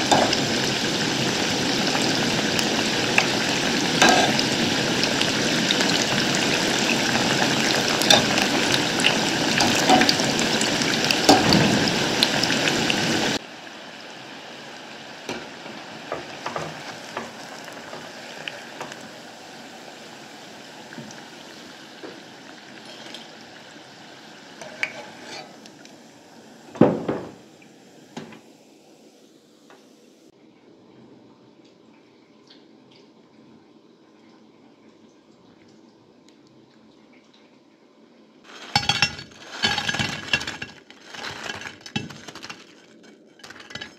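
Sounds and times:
deep-frying sizzle with pops: 0:00.0 - 0:28.4, 0:38.4 - 0:43.9
wire skimmer clinking on pot: 0:04.0 - 0:04.4, 0:07.8 - 0:10.6, 0:38.5 - 0:43.9.

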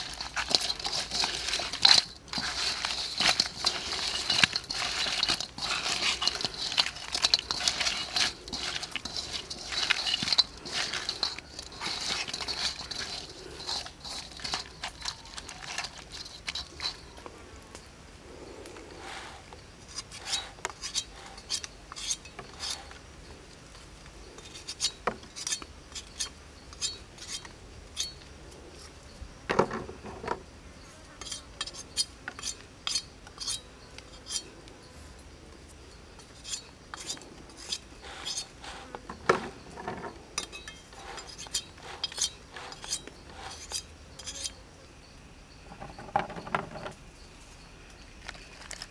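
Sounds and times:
crayfish squelching in wok: 0:00.0 - 0:17.2, 0:18.4 - 0:23.0, 0:36.2 - 0:39.7, 0:40.3 - 0:44.6.

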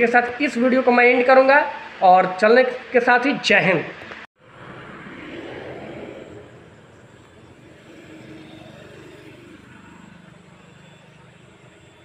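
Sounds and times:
low traffic rumble: 0:03.9 - 0:12.0.

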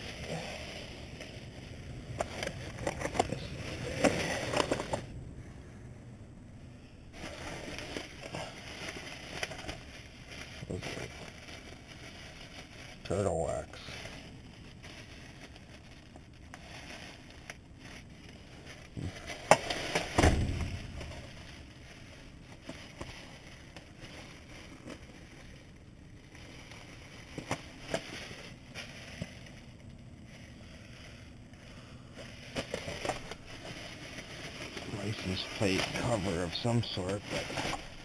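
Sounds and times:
plastic bags rustling: 0:00.0 - 0:05.1, 0:07.1 - 0:38.0
objects knocking inside bags: 0:18.6 - 0:21.8.

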